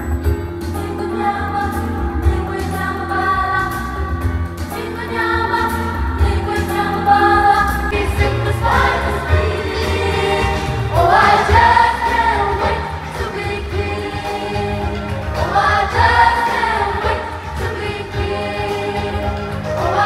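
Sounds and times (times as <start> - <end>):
live band backing: 0.0 - 20.0
youth choir singing: 4.7 - 20.0.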